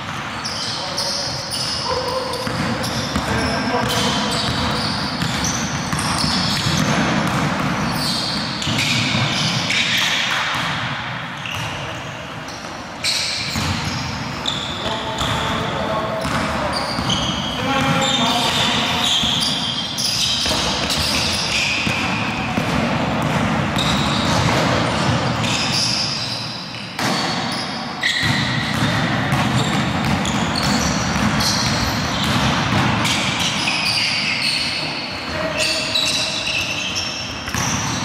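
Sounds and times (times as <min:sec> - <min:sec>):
sneaker squeaks: 0:00.0 - 0:38.0
basketball bouncing on hardwood: 0:02.4 - 0:07.8, 0:20.4 - 0:24.8, 0:28.2 - 0:33.2.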